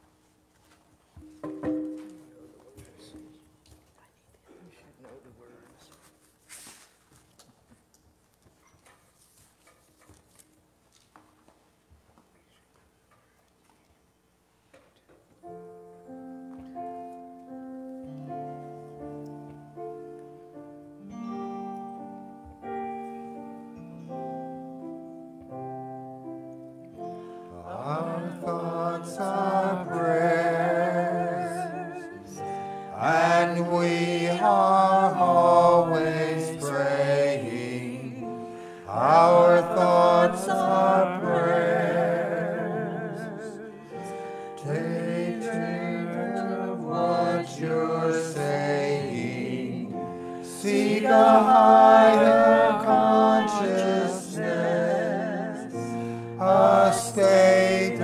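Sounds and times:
vocal group singing slow song: 27.2s - 58.0s.

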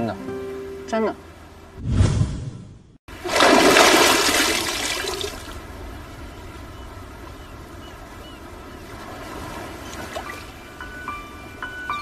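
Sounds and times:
sea water washing: 3.1s - 5.8s
person splashing into water: 3.2s - 5.5s.

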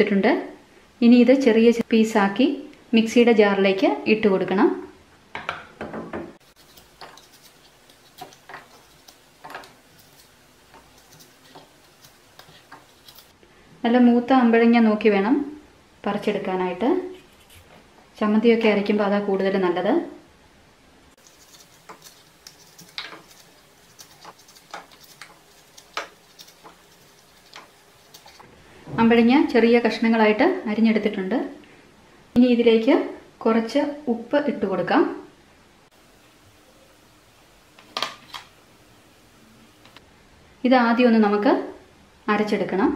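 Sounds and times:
knife cutting fruit: 6.5s - 13.4s, 21.2s - 28.5s.

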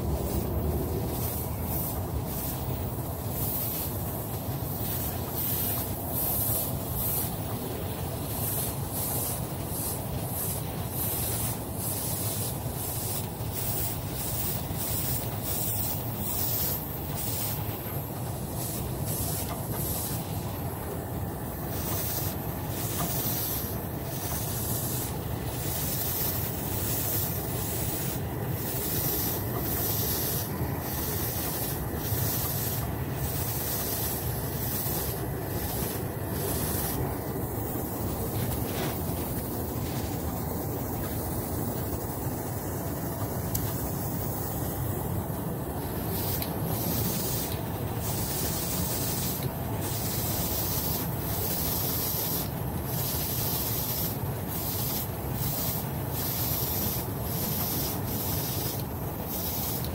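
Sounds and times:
steady low rumble: 0.0s - 5.3s, 20.0s - 46.1s
airbrush spraying short hisses: 0.0s - 42.2s, 46.0s - 59.9s.

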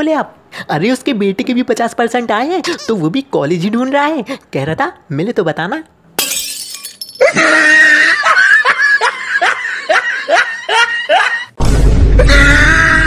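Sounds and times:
person laughing rhythmically: 7.2s - 11.6s.

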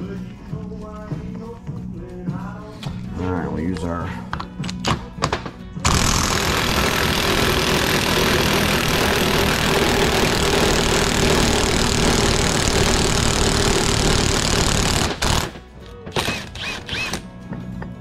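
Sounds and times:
impact wrench running: 5.8s - 15.6s, 16.2s - 17.2s.

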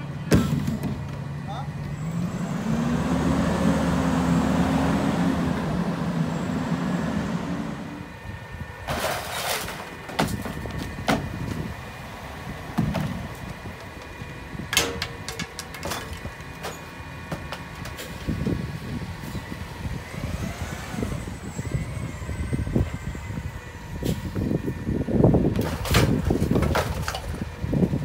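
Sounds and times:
recyclables clattering into truck: 8.8s - 11.7s, 14.7s - 18.5s, 25.5s - 27.6s.

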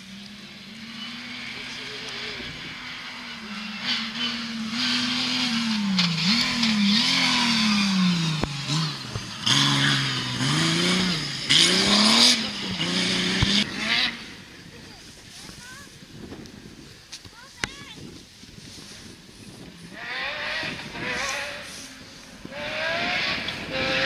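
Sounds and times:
rally car engine revving: 0.0s - 14.6s, 19.9s - 24.0s
tyre and road noise hissing: 0.0s - 24.0s.

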